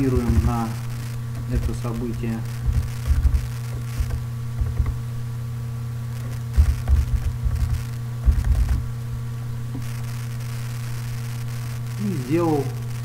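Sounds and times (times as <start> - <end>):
low electrical hum: 0.0 - 13.0
typing on computer keyboard: 2.6 - 5.0.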